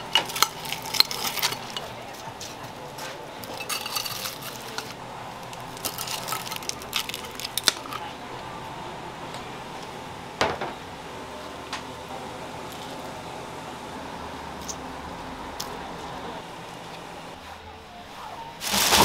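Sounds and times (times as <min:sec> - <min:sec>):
kitchen hum: 0:00.0 - 0:19.0
metal tongs clinking on plates: 0:03.4 - 0:05.0.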